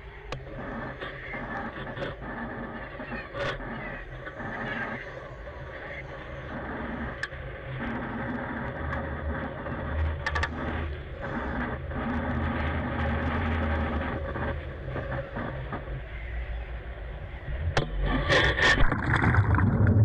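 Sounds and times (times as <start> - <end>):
sharp clicks: 10.0 - 10.6.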